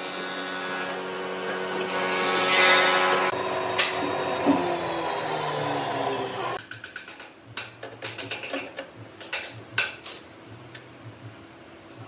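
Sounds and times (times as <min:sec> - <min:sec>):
power tool motor running: 0:01.0 - 0:06.6
tools handled on a bench: 0:06.8 - 0:10.3.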